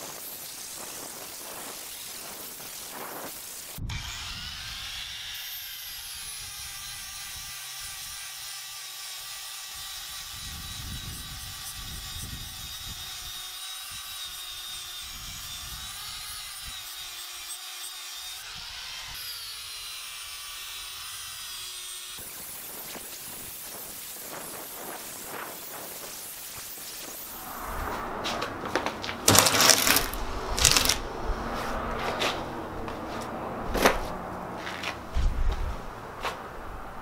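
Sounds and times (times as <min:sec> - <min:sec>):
angle grinder grinding steel: 0:00.2 - 0:27.6, 0:28.8 - 0:31.0.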